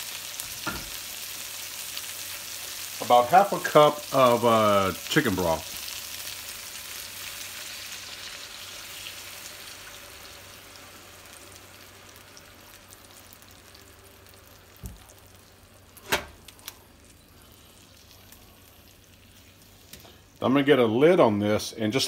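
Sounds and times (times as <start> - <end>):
chicken sizzling in a frying pan: 0.0 - 22.0.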